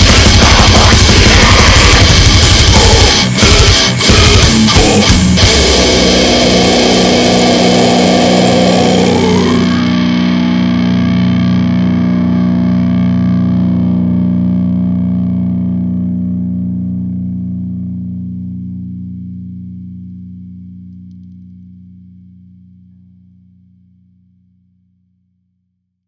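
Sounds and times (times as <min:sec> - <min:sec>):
distorted electric guitar chord ringing: 0:00.0 - 0:20.8.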